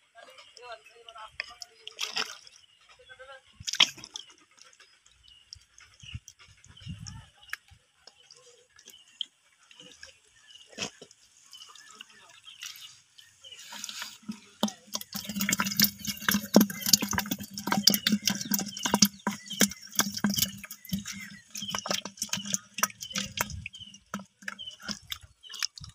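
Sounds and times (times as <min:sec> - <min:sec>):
fish slapping in plastic bucket: 0:13.8 - 0:25.9.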